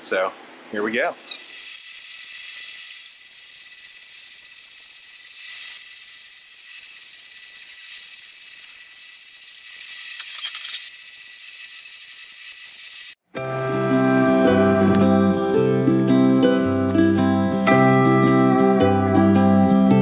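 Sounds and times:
spray paint cans hissing: 0:01.1 - 0:13.2.

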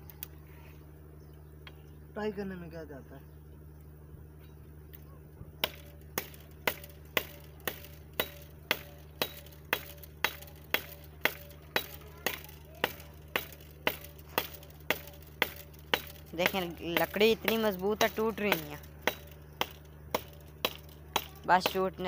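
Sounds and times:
knife hacking at wood: 0:05.6 - 0:21.9.

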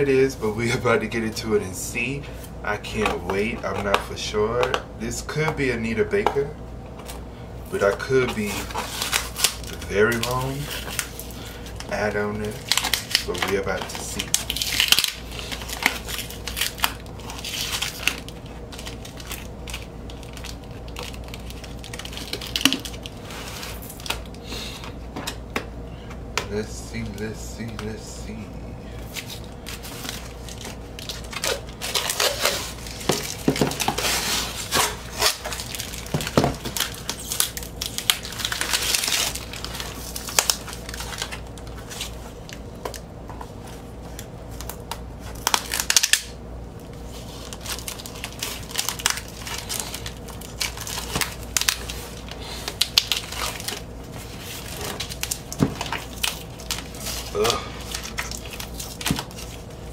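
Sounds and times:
packing tape peeling: 0:08.4 - 0:24.4, 0:29.1 - 0:43.0, 0:44.1 - 0:46.4, 0:47.2 - 0:59.7.

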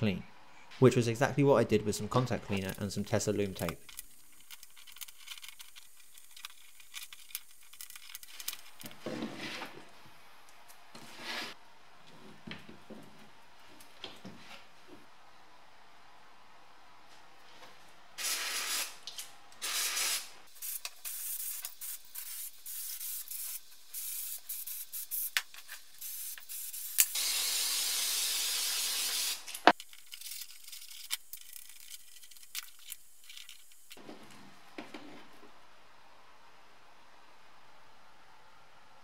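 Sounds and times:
aerosol spray hissing: 0:19.6 - 0:29.5.

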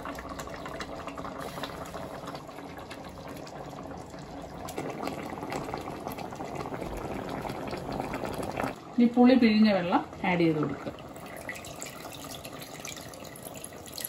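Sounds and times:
curry bubbling in a pot: 0:00.0 - 0:14.0.

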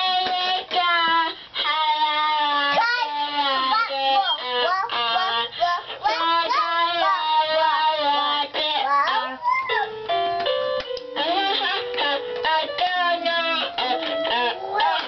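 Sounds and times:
toddler singing: 0:00.0 - 0:10.0, 0:12.1 - 0:15.0
toy keyboard electronic notes: 0:03.2 - 0:15.0.

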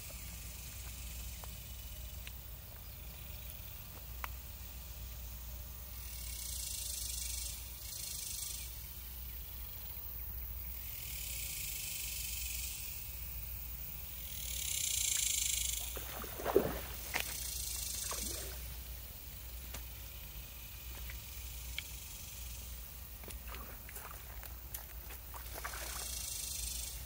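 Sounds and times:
fish splashing in pond water: 0:15.7 - 0:19.1, 0:23.1 - 0:26.9.

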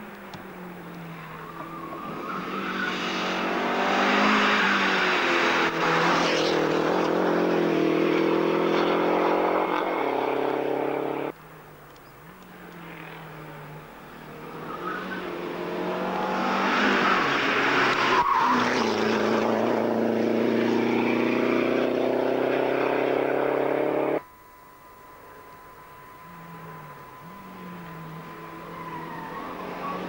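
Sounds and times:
rally car engine passing: 0:00.5 - 0:11.3, 0:12.5 - 0:24.2, 0:26.2 - 0:30.0.

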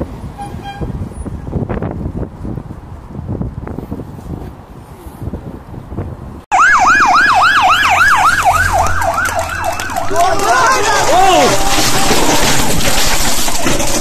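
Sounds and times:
second siren: 0:06.5 - 0:10.8
motorcycle siren wailing: 0:06.5 - 0:12.2.

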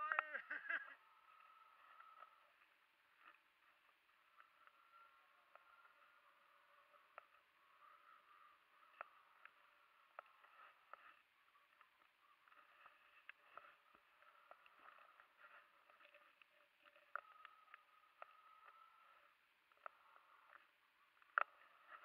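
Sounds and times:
faint thin steady tone: 0:00.0 - 0:22.0
faint ticks: 0:00.0 - 0:22.0.

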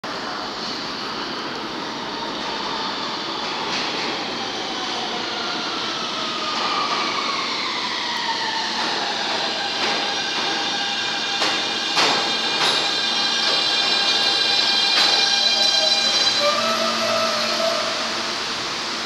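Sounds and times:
subway train rumble: 0:00.0 - 0:19.0
high steady squeal: 0:11.9 - 0:18.6.

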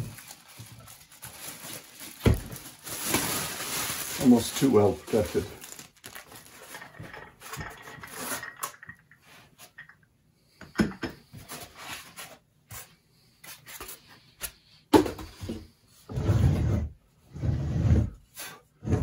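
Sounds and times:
foam rustling and rubbing: 0:00.0 - 0:07.1.

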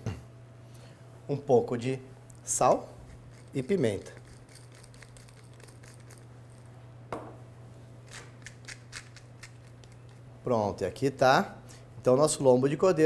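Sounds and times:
pepper mill grinding clicks: 0:03.1 - 0:06.3, 0:08.1 - 0:10.2.

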